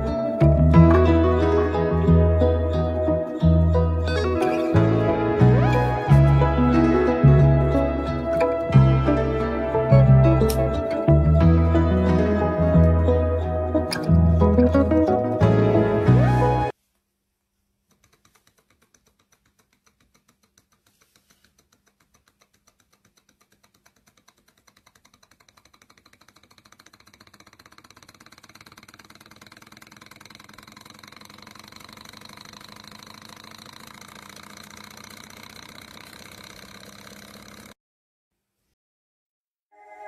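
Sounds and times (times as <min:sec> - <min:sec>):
flywheel flick: 0:17.9 - 0:37.8
small engine mechanical clicking: 0:17.9 - 0:37.8.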